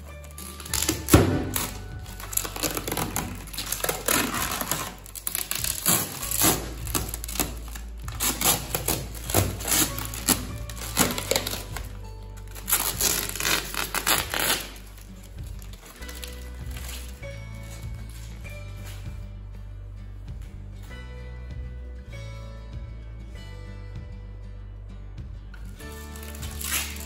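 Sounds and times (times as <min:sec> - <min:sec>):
background music: 0:00.0 - 0:27.0
packaging rustling and crinkling: 0:00.2 - 0:19.1, 0:25.8 - 0:27.0.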